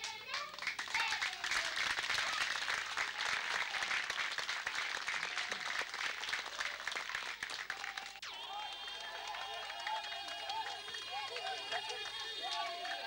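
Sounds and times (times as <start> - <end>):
crowd clapping: 0.0 - 13.0
quiet voices: 7.4 - 13.0.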